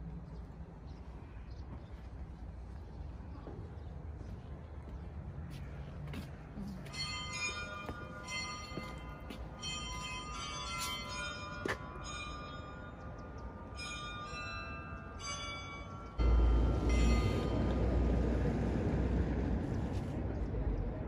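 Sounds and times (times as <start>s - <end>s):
church bells ringing: 6.8s - 18.7s
loud low rumble: 16.2s - 21.0s.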